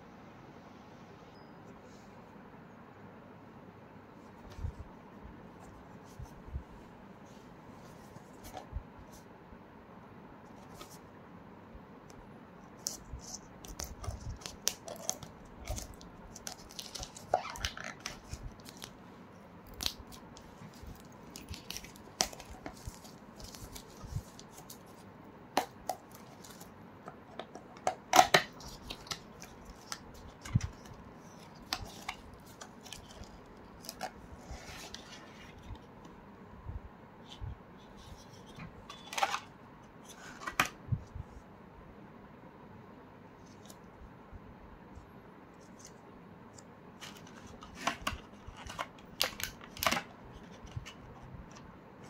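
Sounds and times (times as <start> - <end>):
packaging clicks and rustles: 19.7 - 25.0, 47.0 - 51.7.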